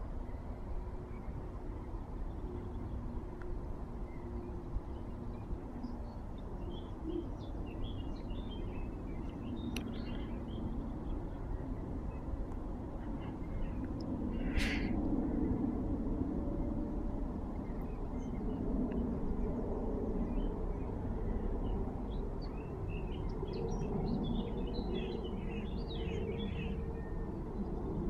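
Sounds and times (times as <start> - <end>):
low background rumble: 0.0 - 28.0
swallows twittering: 4.0 - 12.4, 13.0 - 15.5, 17.6 - 28.0.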